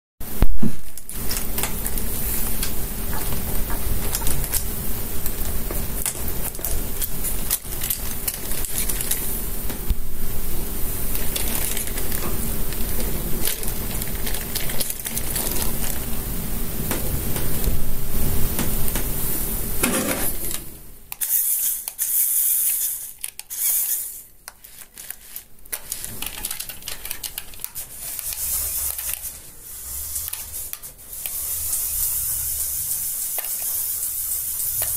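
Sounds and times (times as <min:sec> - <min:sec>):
toy motor whirring with rattling gears: 0:06.0 - 0:09.3, 0:11.1 - 0:12.2, 0:12.8 - 0:16.1, 0:21.1 - 0:34.9.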